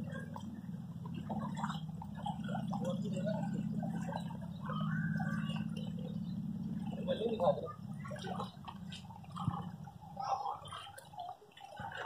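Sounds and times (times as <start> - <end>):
footsteps splashing through water: 8.0 - 12.0.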